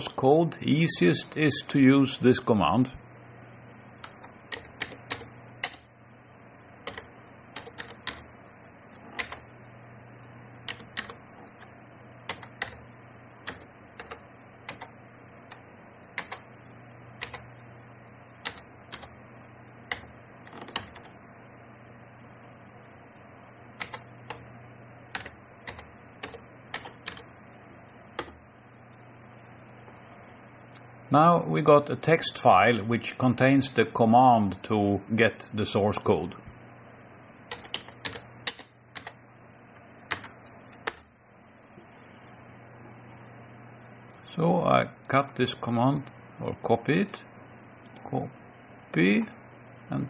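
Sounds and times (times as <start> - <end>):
steady background hum: 0.0 - 50.0
keyboard key clicks: 19.9 - 21.1, 37.5 - 39.2.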